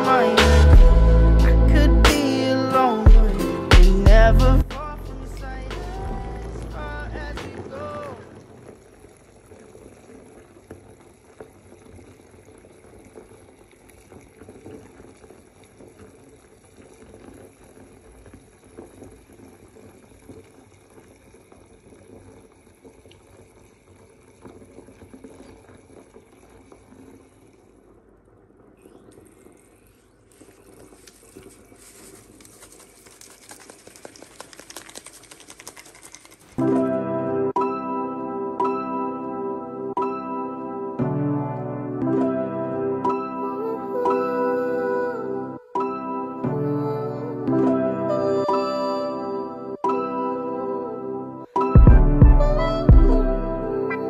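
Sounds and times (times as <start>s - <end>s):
foam bubbles fizzing: 0.0s - 37.8s, 42.0s - 54.0s
water filling a bathtub: 6.4s - 36.7s.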